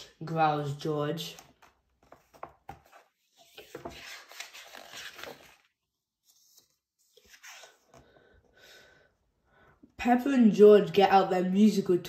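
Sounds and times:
book page rustling: 1.3 - 8.2.

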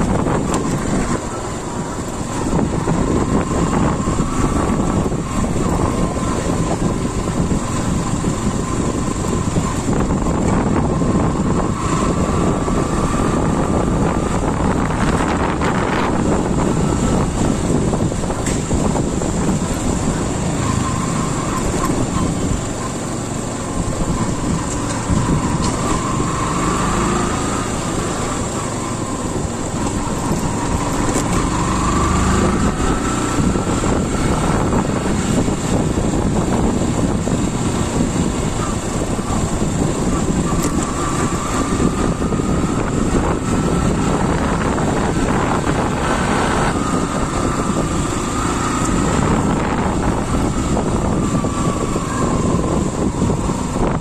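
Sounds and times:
motorbike engine running: 0.0 - 54.0
wind noise on microphone: 0.0 - 54.0.

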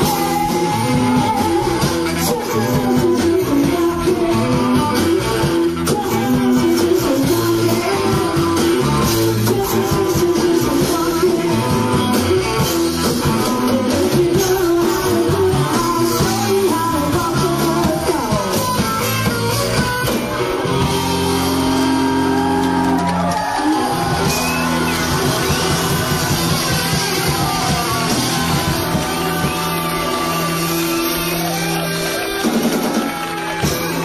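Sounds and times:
person singing: 0.0 - 21.0
electric guitar chords: 0.0 - 34.0.

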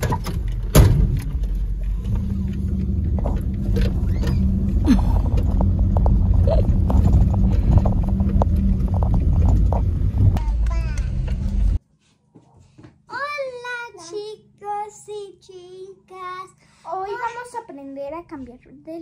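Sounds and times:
knocks and rattles: 0.0 - 11.8
truck engine and road rumble: 0.0 - 11.8.

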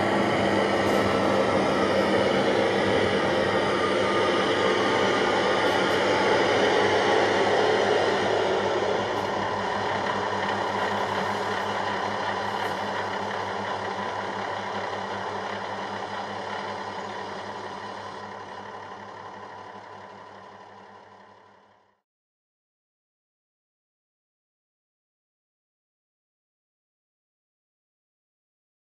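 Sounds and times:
rushing noise: 0.0 - 19.6
diesel engine idling: 0.0 - 22.0.

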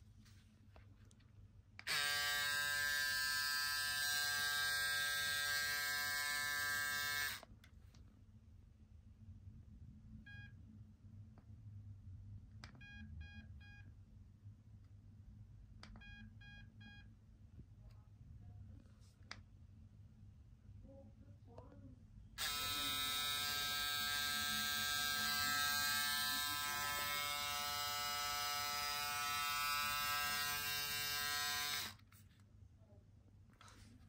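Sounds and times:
electric shaver humming: 1.8 - 7.4, 22.4 - 32.0.

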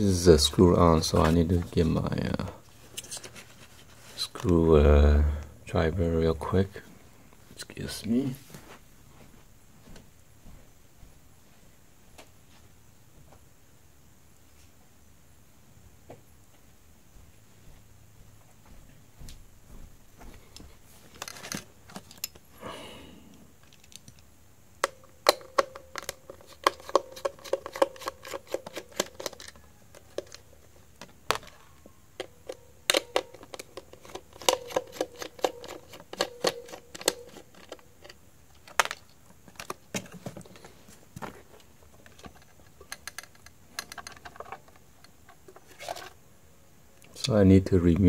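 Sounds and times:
plastic clicks and scrapes: 25.4 - 31.6, 32.2 - 46.2
screwdriver turning screw in plastic: 25.9 - 30.4, 32.2 - 39.8.

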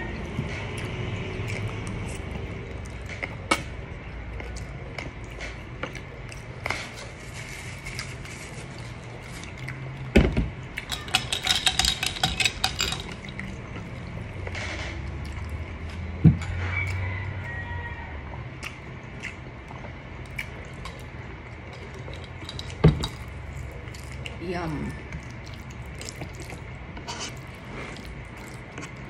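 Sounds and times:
crisp crackling chewing: 4.2 - 10.1, 18.5 - 29.0
spaghetti slurped and chewed: 18.6 - 24.4, 25.0 - 29.0.

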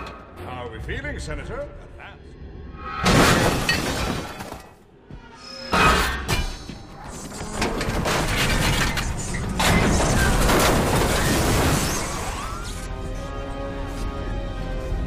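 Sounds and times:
glass shattering: 3.0 - 4.6
metal clattering and crashing: 7.4 - 12.3.

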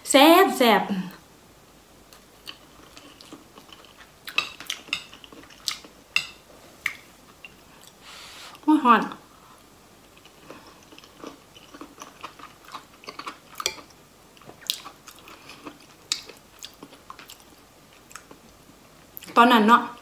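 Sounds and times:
person chewing food: 2.1 - 8.6, 10.0 - 18.6.

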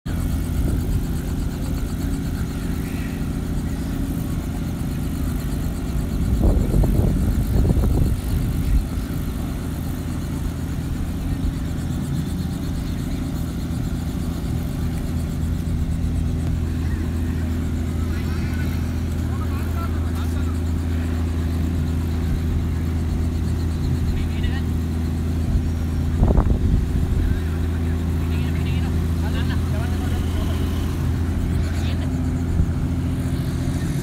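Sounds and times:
low mechanical hum: 0.1 - 34.0.

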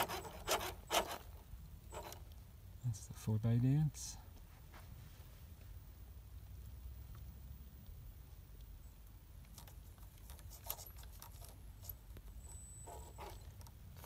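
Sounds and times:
faint clicks and scrapes on rock: 0.0 - 2.4, 8.6 - 14.0.

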